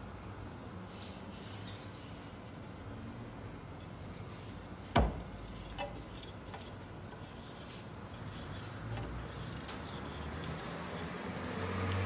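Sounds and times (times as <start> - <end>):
hand auger boring wood: 5.7 - 11.6.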